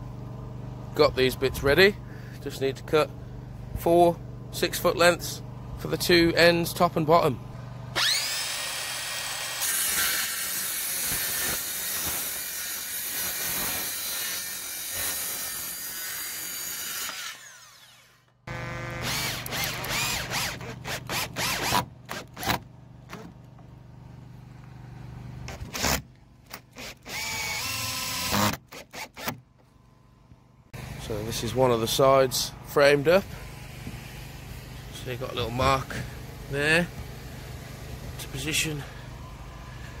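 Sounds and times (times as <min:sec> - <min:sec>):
circular saw cutting wood: 0:07.9 - 0:22.6, 0:25.5 - 0:29.4
drill driving screws: 0:08.0 - 0:22.6, 0:25.5 - 0:29.4.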